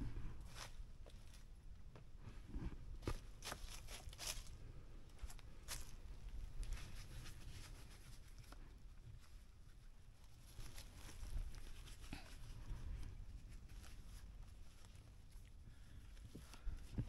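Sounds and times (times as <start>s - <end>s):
faint rustling: 0.0s - 17.0s
steps on dry leaves: 3.1s - 4.5s, 5.2s - 6.0s.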